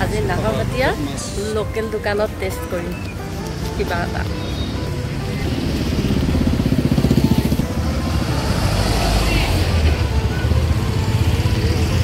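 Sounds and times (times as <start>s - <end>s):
motorcycle engine running: 3.4s - 12.0s.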